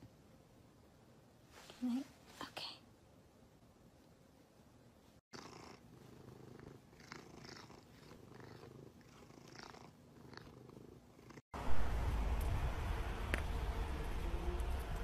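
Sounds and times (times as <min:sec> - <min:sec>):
cat purring: 0:05.3 - 0:11.4
noisy low rumble: 0:11.6 - 0:15.0.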